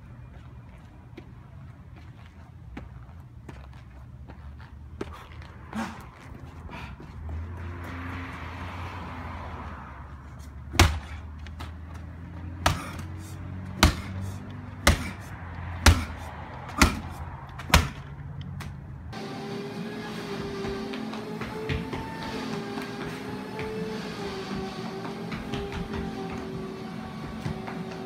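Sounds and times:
medicine ball thudding on pavement: 0:10.7 - 0:13.1, 0:13.7 - 0:14.2, 0:14.8 - 0:18.8, 0:21.4 - 0:24.0, 0:25.0 - 0:26.6.

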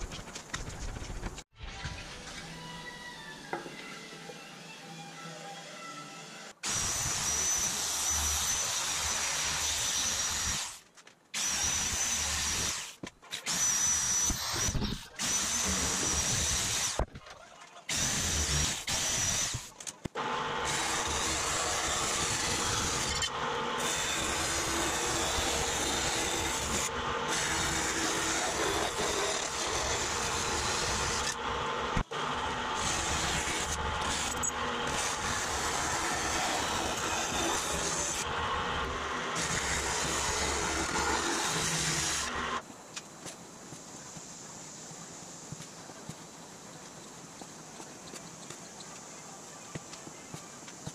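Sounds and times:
power tool cutting aluminum: 0:01.6 - 0:10.8, 0:11.4 - 0:17.0, 0:17.9 - 0:42.6
band saw cutting metal sheet: 0:17.9 - 0:42.6.

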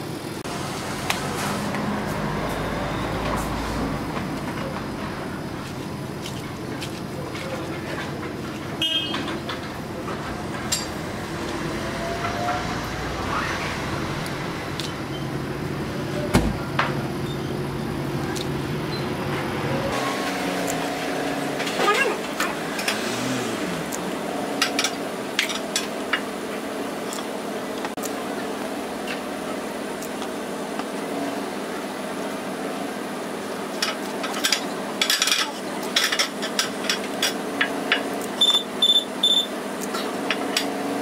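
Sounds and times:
background hum and murmur: 0:00.0 - 0:41.0
sharp knocks and clinks: 0:10.6 - 0:11.0.

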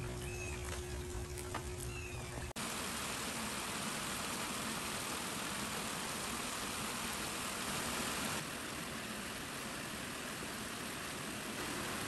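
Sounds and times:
water rushing over weir: 0:02.6 - 0:12.0.

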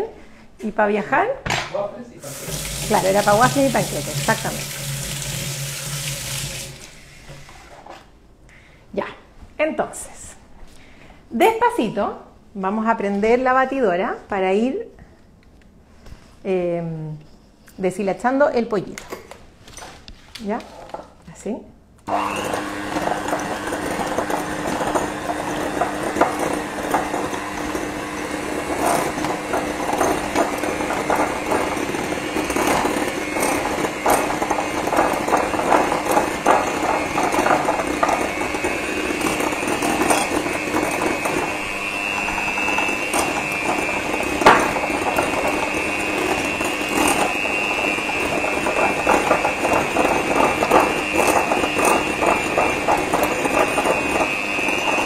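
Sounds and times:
electric hand mixer whine: 0:02.2 - 0:07.5, 0:22.1 - 0:55.0
beaters rattling against bowl: 0:02.3 - 0:06.8, 0:22.1 - 0:55.0.

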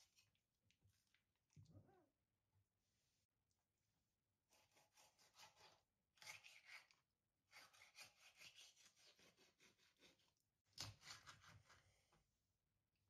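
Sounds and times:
knife cutting raw chicken: 0:04.5 - 0:11.8.

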